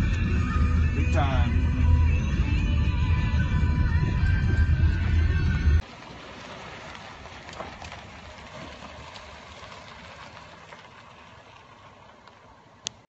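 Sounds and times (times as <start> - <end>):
music: 0.0 - 5.8
light crackles: 5.8 - 13.0.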